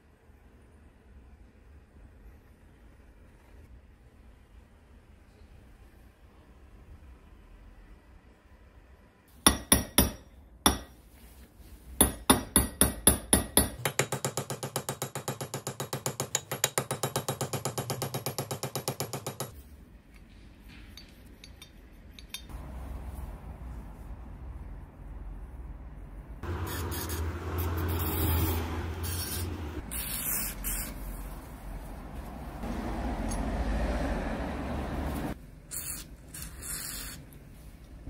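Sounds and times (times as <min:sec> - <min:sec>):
hammer striking metal punch: 0:09.5 - 0:11.0, 0:12.0 - 0:19.5.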